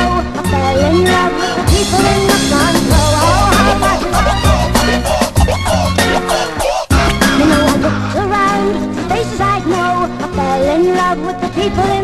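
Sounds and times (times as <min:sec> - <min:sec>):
person rapping: 0:01.7 - 0:08.5
hip-hop beat: 0:01.7 - 0:08.9.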